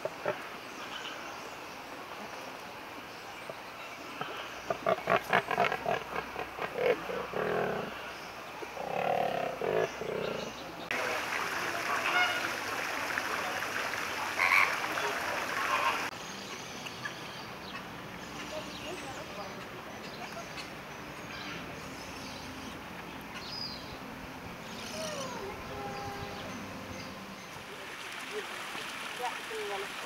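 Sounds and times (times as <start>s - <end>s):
flamingos gabbling and honking: 4.2s - 8.1s, 8.7s - 16.2s.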